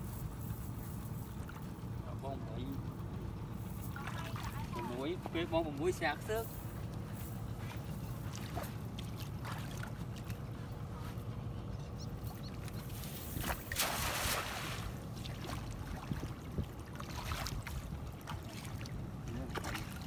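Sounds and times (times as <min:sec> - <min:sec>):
steady low rumble: 0:00.0 - 0:20.0
cast net splashing into water: 0:13.4 - 0:18.9.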